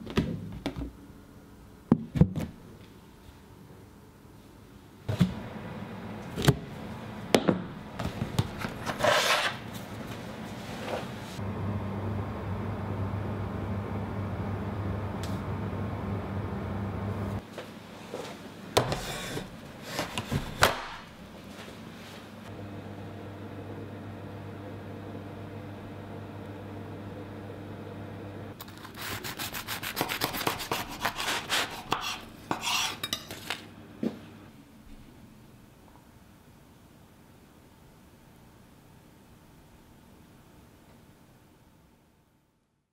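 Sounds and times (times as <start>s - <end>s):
knife sawing through bread crust: 28.9s - 33.0s.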